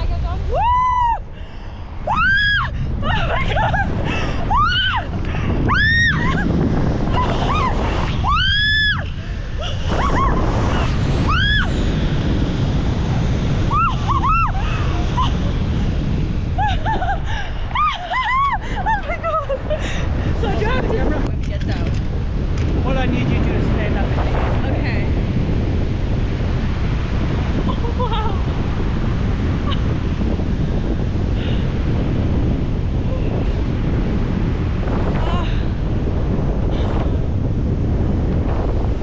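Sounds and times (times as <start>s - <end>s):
wind buffeting microphone: 0.0s - 39.0s
woman shrieking: 0.5s - 1.2s, 2.1s - 3.6s, 4.4s - 5.1s, 5.7s - 6.5s, 7.1s - 9.1s, 13.7s - 15.5s, 17.7s - 19.0s.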